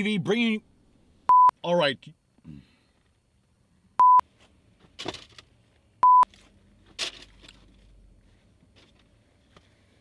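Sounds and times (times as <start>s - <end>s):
loud electronic beep: 1.3s - 1.6s, 4.0s - 4.2s, 6.0s - 6.3s.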